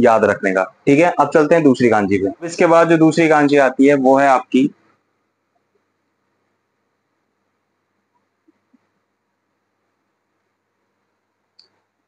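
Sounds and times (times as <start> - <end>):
faint room hiss: 0.0 - 12.0
tiny soft ticks: 11.5 - 11.8.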